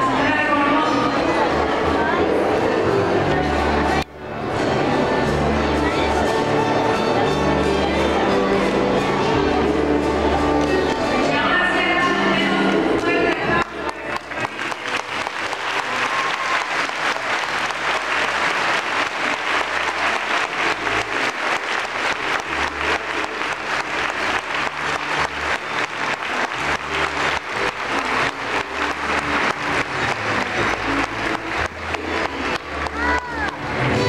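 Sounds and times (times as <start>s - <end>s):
congregation clapping: 13.0s - 33.9s.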